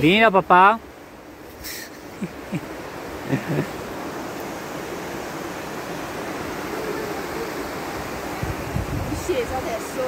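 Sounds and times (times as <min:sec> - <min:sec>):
steady rushing noise: 0:01.3 - 0:10.0
faint voice sounds: 0:06.6 - 0:07.8.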